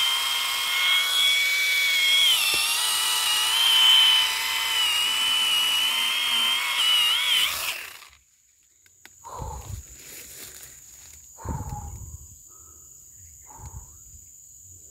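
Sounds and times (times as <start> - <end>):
chainsaw cutting wood: 0.0 - 8.2.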